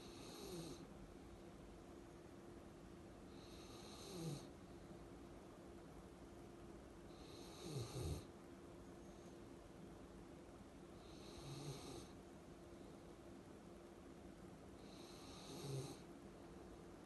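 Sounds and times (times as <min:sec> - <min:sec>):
dog snoring: 0:00.0 - 0:00.9, 0:03.3 - 0:04.5, 0:07.1 - 0:08.3, 0:11.0 - 0:12.2, 0:14.8 - 0:16.0.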